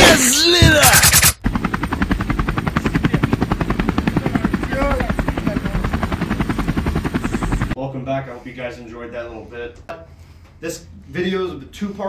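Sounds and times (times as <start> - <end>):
rhythmic mechanical beating: 0.6 - 7.8.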